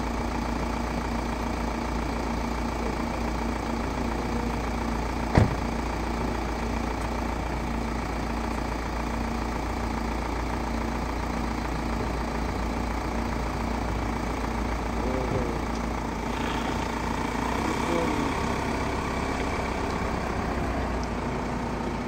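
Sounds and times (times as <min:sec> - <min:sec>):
vehicle engine idling: 0:00.0 - 0:22.0.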